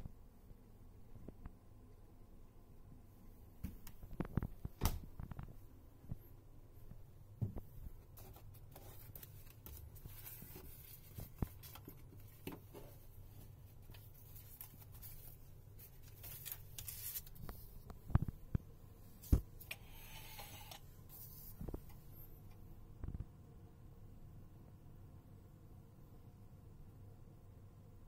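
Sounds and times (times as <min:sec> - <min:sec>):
low steady hum: 0:00.0 - 0:28.0
paper rustling: 0:08.0 - 0:17.9.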